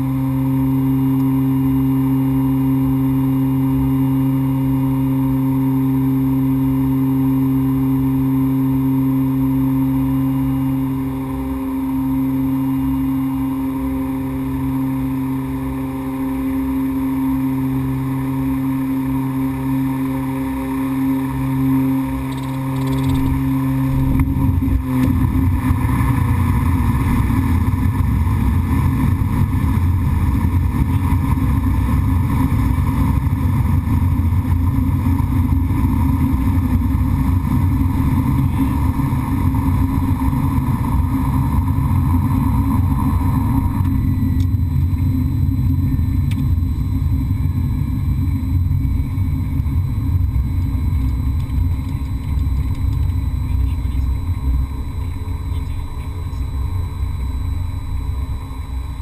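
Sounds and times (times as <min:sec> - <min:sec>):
propeller hum: 0:00.0 - 0:59.0
rough low engine rumble: 0:00.0 - 0:59.0.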